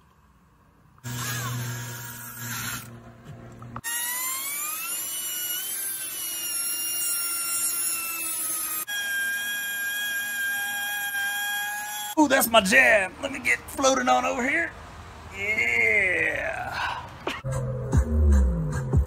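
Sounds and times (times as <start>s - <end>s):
cordless drill boring fiberglass: 1.0s - 2.9s, 3.8s - 12.2s
shop vacuum: 1.0s - 6.2s
rotary tool whining: 1.0s - 12.2s.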